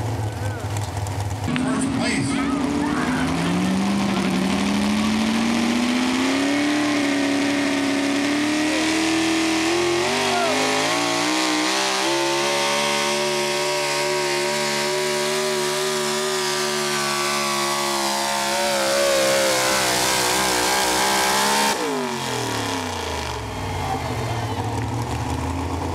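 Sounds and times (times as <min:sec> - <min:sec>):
truck engine at high revs: 0:00.0 - 0:25.9.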